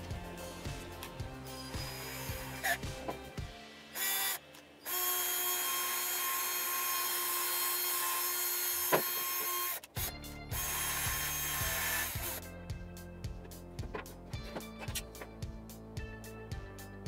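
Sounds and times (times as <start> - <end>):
background music with beat: 0.0 - 4.3, 10.0 - 17.0
drill wire brush on steel: 0.3 - 3.0, 3.9 - 12.4.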